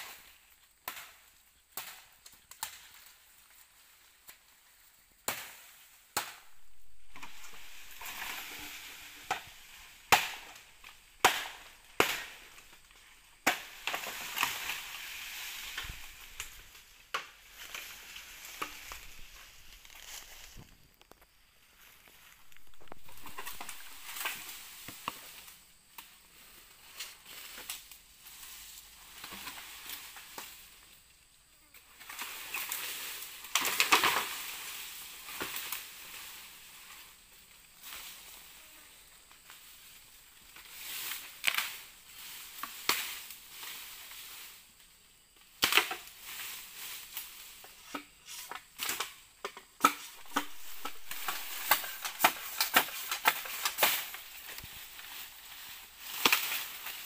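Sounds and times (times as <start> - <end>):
dry bamboo and leaves crackling: 0.0 - 57.0
sharp cracks: 6.2 - 17.9, 49.9 - 54.7.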